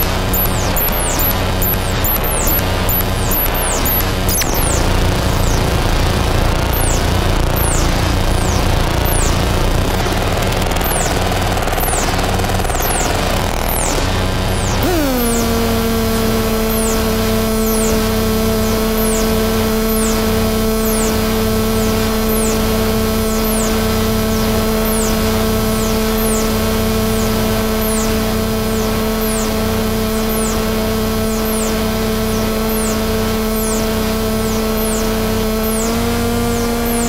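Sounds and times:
low synth drone: 0.0 - 37.0
high falling electronic chirps: 6.6 - 9.5, 14.6 - 20.2
hiss and pulsing hum: 12.9 - 37.0.

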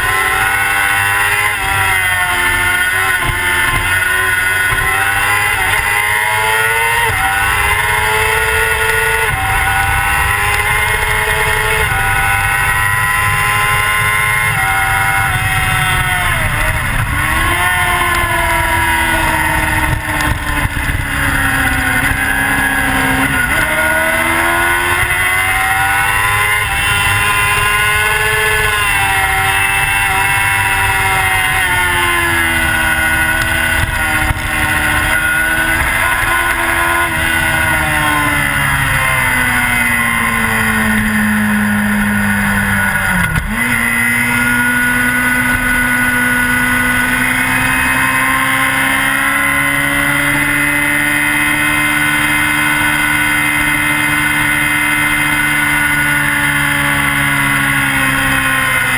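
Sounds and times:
motorcycle engine accelerating: 0.0 - 58.9
wind noise on microphone: 8.4 - 46.1.

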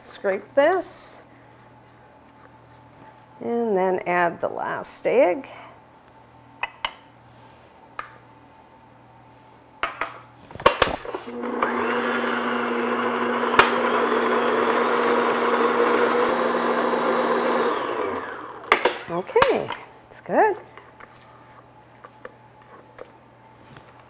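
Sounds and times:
electric stand mixer running: 11.3 - 18.8.

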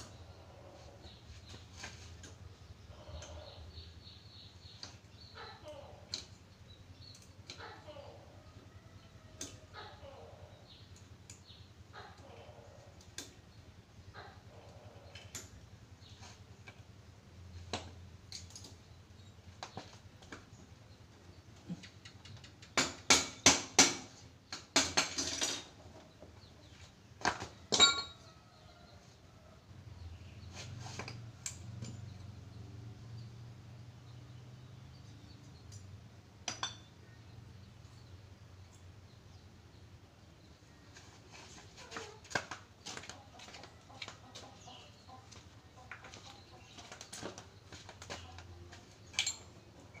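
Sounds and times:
metal tools clanking on concrete: 24.0 - 26.2, 27.2 - 28.4, 31.0 - 32.4, 36.4 - 37.1, 48.0 - 50.0.

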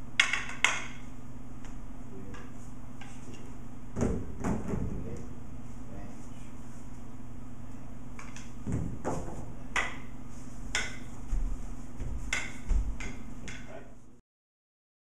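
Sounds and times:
low electrical hum: 0.0 - 14.2
dull thumps on a mat: 8.6 - 9.5
sticks clacking together: 10.7 - 11.1, 12.3 - 13.8.

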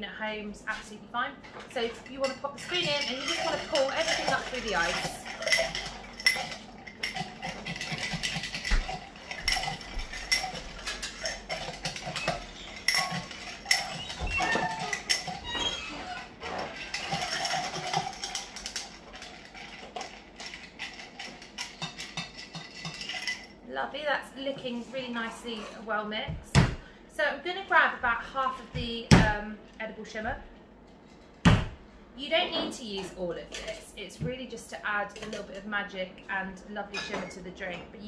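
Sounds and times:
bar spoon clinking ice in glass: 2.2 - 15.9, 16.7 - 23.5.

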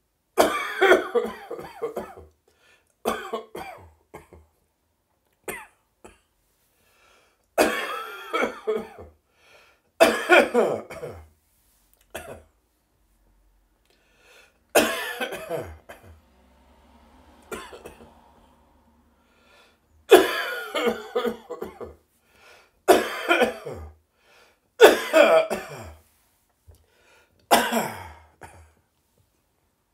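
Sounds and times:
person coughing: 0.4 - 2.3, 3.1 - 4.5, 7.6 - 9.2, 10.0 - 11.3, 14.8 - 16.1, 17.5 - 18.1, 20.1 - 22.0, 22.9 - 24.0, 24.8 - 26.0, 27.5 - 28.8.

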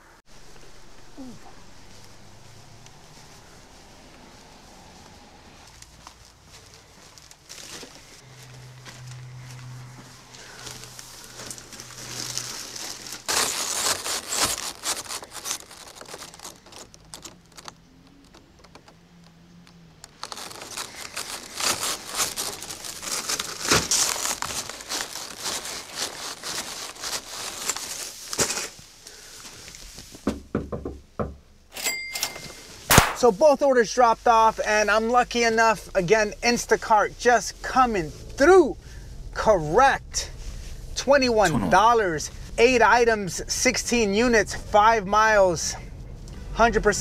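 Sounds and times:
plastic bags crinkling and rustling: 0.4 - 30.3.

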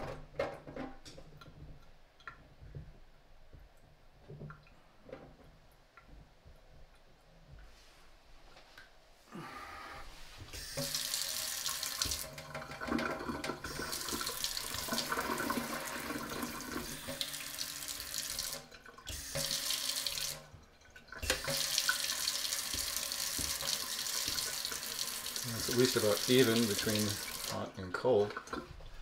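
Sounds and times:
faucet running into steel sink: 10.5 - 29.0.

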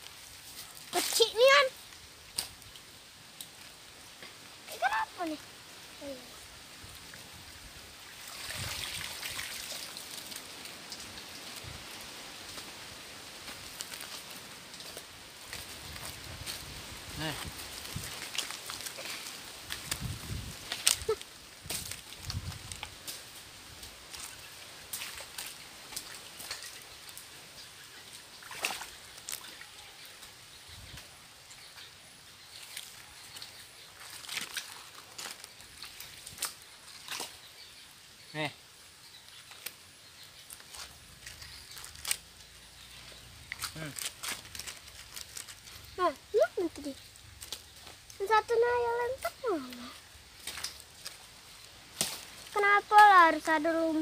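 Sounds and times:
water trickling and dripping: 0.0 - 54.0
water splashing through a net: 8.0 - 11.7, 24.1 - 27.2, 28.4 - 29.8, 34.0 - 37.4.

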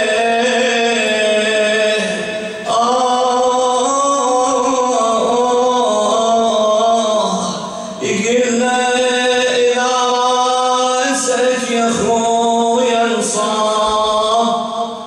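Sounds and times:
man chanting a lament: 0.0 - 15.0
short breath: 7.6 - 8.0.

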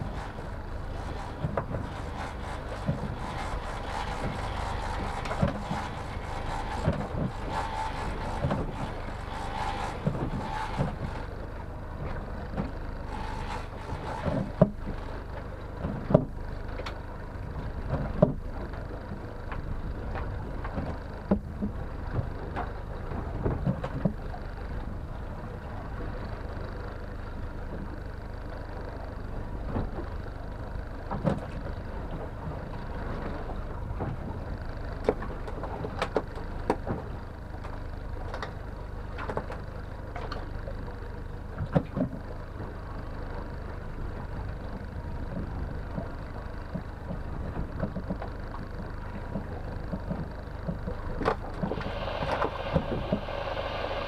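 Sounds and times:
water churning: 0.0 - 11.9
outboard motor running: 0.0 - 54.0
hiss: 51.7 - 54.0.

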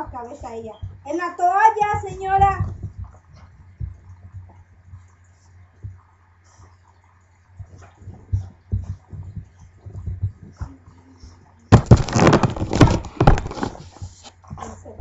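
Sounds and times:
soft thumps and cloth rustling: 0.0 - 6.8, 7.6 - 15.0
low steady hum: 0.0 - 15.0
webcam knocking and scraping: 11.8 - 14.4.

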